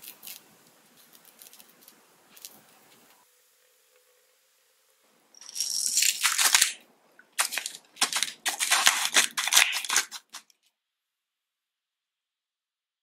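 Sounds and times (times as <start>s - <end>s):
pepper mill grinding: 5.4s - 6.8s, 7.4s - 10.5s.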